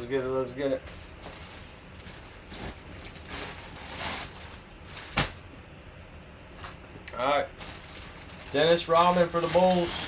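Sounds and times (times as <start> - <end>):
fabric bag and plastic rustling: 0.9 - 5.3, 7.6 - 10.0.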